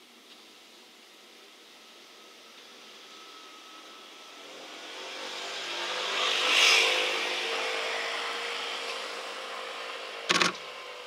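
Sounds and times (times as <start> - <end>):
vehicle passing by: 4.3 - 10.2.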